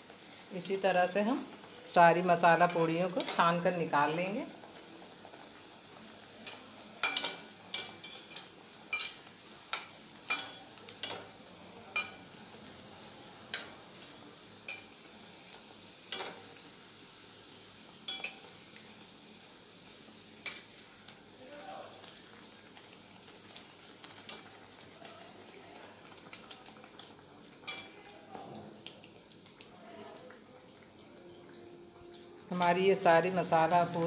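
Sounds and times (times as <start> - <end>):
deep-frying sizzle: 0.0 - 34.0
metal spoon clinking on pan: 6.4 - 11.3, 11.9 - 12.2, 14.7 - 14.9, 16.1 - 16.4, 18.1 - 18.5, 27.7 - 28.0, 32.5 - 32.8.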